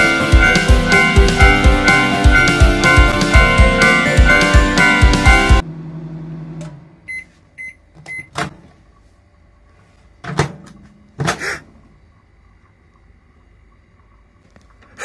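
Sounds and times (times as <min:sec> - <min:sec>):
band music with drums and guitar: 0:00.0 - 0:05.6
microwave oven beeps: 0:06.3 - 0:08.5.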